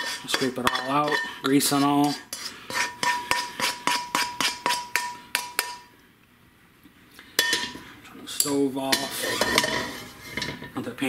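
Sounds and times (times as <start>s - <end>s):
spoon knocking on metal skillet: 0.0s - 1.4s, 2.7s - 5.9s, 7.4s - 7.8s.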